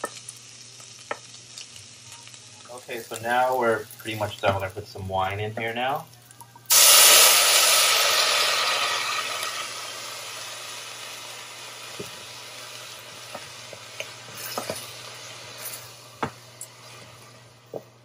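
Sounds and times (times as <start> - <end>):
wine sizzling in a hot pot: 0.0 - 18.0
wooden spoon stirring: 13.3 - 17.9.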